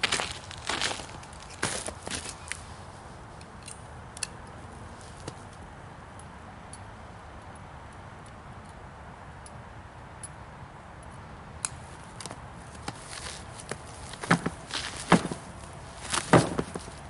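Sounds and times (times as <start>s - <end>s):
low outdoor rumble: 11.6s - 17.0s.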